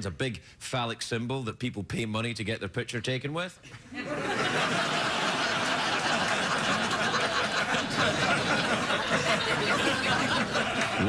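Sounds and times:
studio audience laughing: 3.8s - 11.0s.

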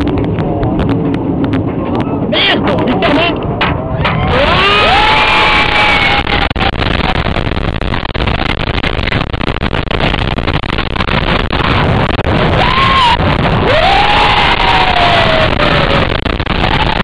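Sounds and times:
roller coaster train roaring: 0.0s - 7.4s, 11.7s - 17.0s
wind rushing over microphone: 0.0s - 17.0s.

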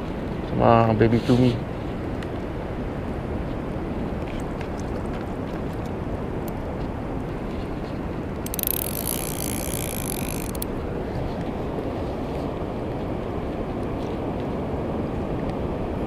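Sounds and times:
wind and sea water rushing: 0.0s - 16.0s
fishing reel whirring buzz: 8.4s - 10.7s.

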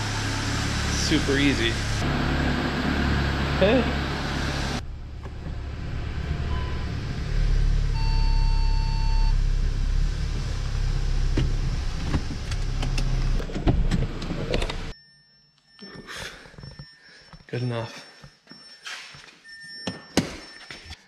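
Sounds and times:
car engine running: 0.0s - 14.9s.

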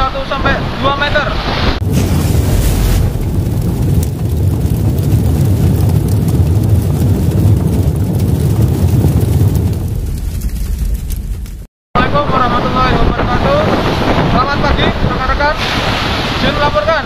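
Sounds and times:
deep continuous rumble: 0.3s - 15.6s
rushing whoosh: 13.2s - 16.6s.

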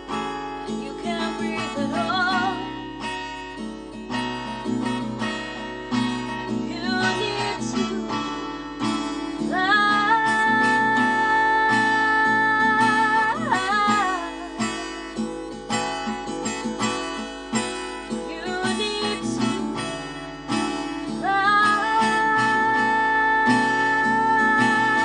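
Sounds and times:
acoustic guitar playing: 0.0s - 25.0s
woman singing: 0.6s - 3.0s, 5.9s - 15.4s, 17.8s - 25.0s.

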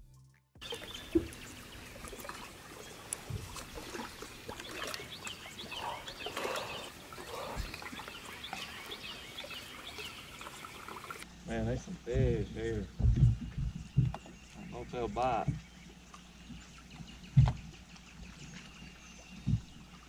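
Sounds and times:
birds chirping and singing: 0.6s - 20.0s
soft thumps: 12.2s - 14.4s, 17.3s - 17.7s.

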